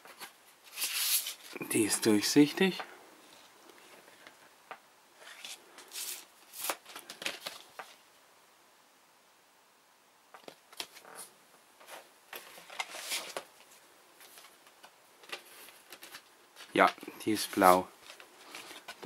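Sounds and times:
record sleeves rustling and clicking: 0:00.0 - 0:01.6, 0:02.7 - 0:08.0, 0:10.3 - 0:19.0.

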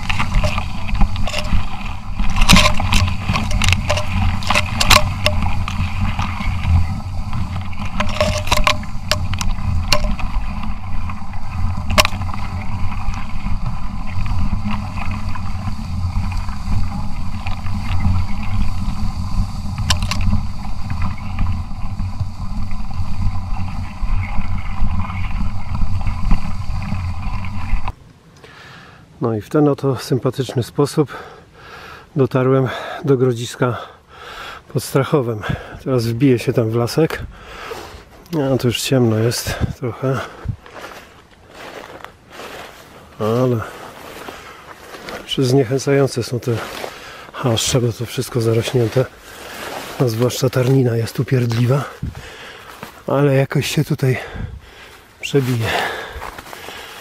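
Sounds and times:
bike rumbling through grass: 0:00.0 - 0:28.0, 0:34.8 - 0:57.0
grass stalks swishing and clicking: 0:00.0 - 0:28.0, 0:40.3 - 0:53.2.

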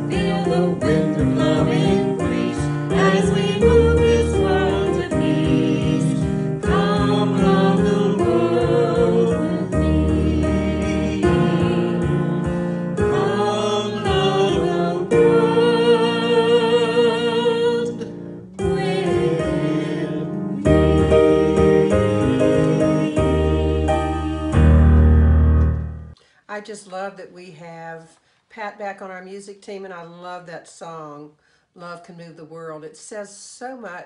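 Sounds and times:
man and woman singing duet: 0:00.0 - 0:24.8
keyboard accompaniment: 0:00.0 - 0:26.2.

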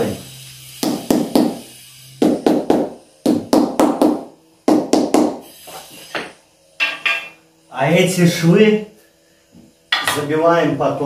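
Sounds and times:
hammer knocking on bricks: 0:02.2 - 0:05.4.

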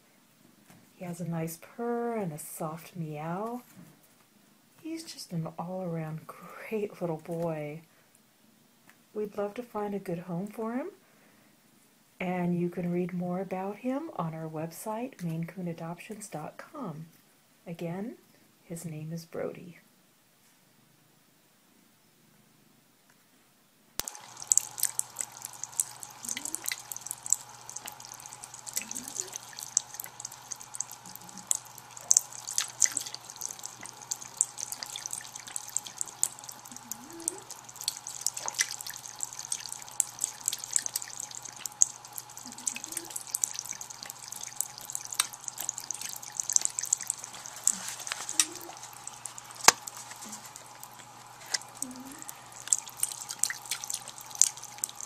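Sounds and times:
cat lapping water: 0:24.0 - 0:55.0
faucet water trickling into basin: 0:24.0 - 0:55.0.

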